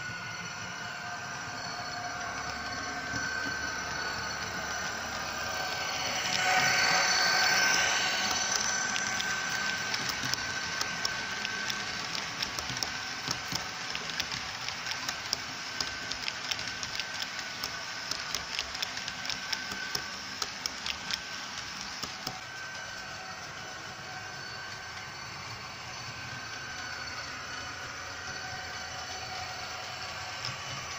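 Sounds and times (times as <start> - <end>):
model train coaches rolling: 0.0 - 30.9
wheels clicking over rail joints: 4.4 - 22.4.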